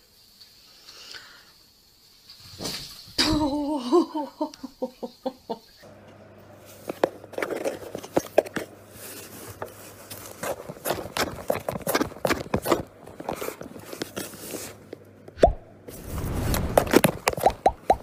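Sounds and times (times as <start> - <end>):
person laughing: 3.4 - 5.8.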